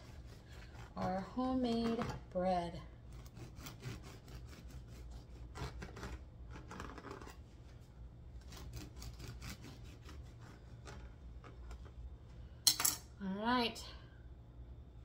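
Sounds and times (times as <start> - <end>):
bread knife sawing crust: 0.0 - 2.1, 3.0 - 7.4, 8.4 - 11.2.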